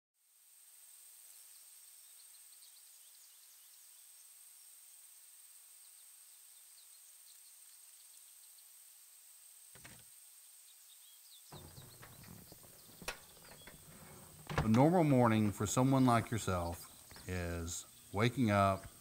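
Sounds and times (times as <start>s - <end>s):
steady high hiss: 0.2s - 19.0s
faint bird chirps: 1.3s - 5.0s, 10.4s - 19.0s.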